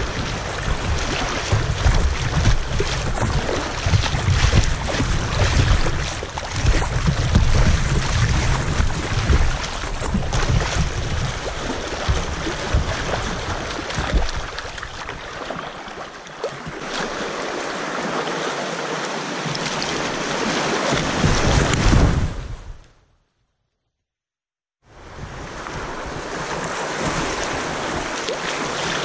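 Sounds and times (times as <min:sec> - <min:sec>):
wind buffeting microphone: 0:00.0 - 0:14.9, 0:25.0 - 0:28.2
water rushing against kayak: 0:00.0 - 0:22.9, 0:24.9 - 0:29.0.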